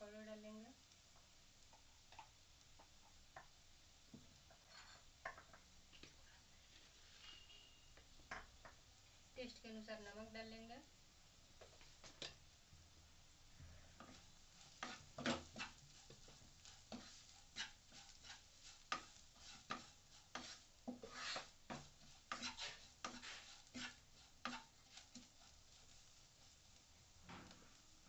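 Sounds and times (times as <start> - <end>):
wooden spatula scraping a pan: 4.4 - 8.8, 13.7 - 27.9.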